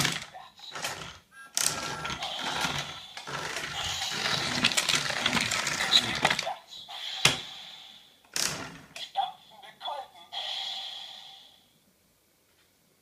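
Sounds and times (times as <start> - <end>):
toy train rattling whir: 0.0 - 6.5.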